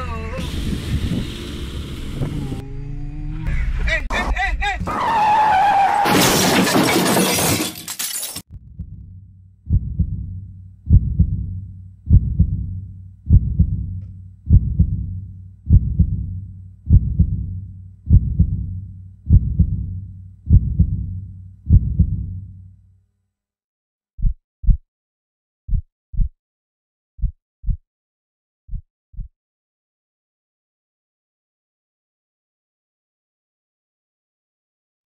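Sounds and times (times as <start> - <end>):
crash with shattering glass: 6.0 - 8.4
heartbeat low double thumps: 8.5 - 22.5, 24.2 - 24.8, 25.7 - 26.4, 27.2 - 27.8, 28.7 - 29.3.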